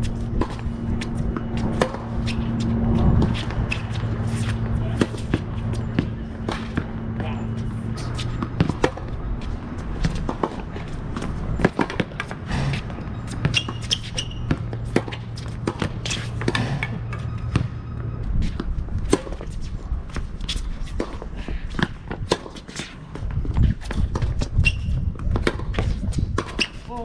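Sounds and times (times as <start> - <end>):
steady low hum: 0.0 - 22.3
footsteps on hard court: 0.0 - 24.4
racket striking tennis ball: 0.2 - 17.7, 18.5 - 19.5, 25.2 - 26.9
ball bouncing: 0.3 - 19.5.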